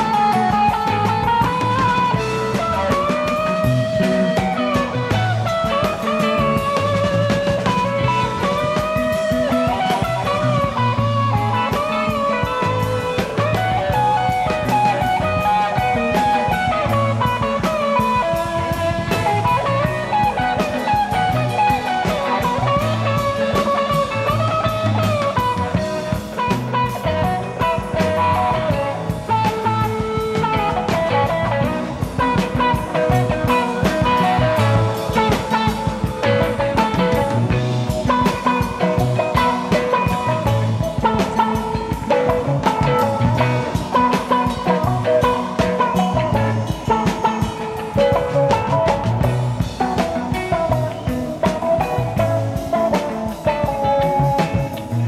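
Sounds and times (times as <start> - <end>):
rock music: 0.0 - 55.0.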